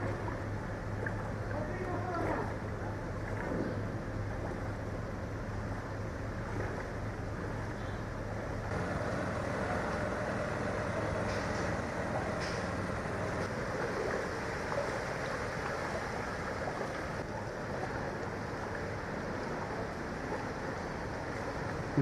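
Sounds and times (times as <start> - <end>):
traffic on flooded street: 0.0 - 22.0
vehicle engines running: 2.5 - 19.8.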